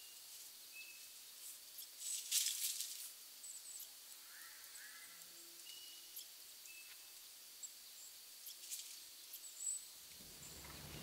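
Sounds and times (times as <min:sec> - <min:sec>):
soft steady hiss: 0:00.0 - 0:11.0
bird chirps: 0:03.4 - 0:08.6, 0:09.2 - 0:11.0.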